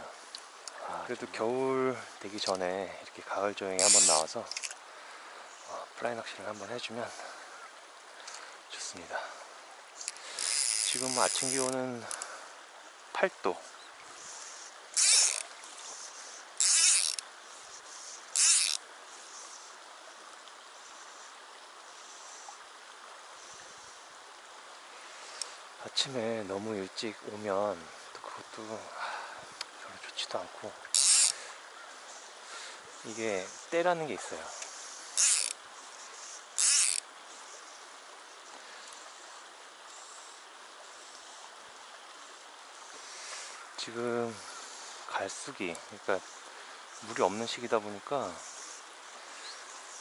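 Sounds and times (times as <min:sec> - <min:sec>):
mountain stream rushing: 0:00.0 - 0:50.0
fly reel drag buzzing: 0:03.6 - 0:04.8, 0:09.9 - 0:12.4, 0:13.6 - 0:19.8, 0:25.0 - 0:25.6, 0:30.3 - 0:41.5, 0:42.7 - 0:50.0.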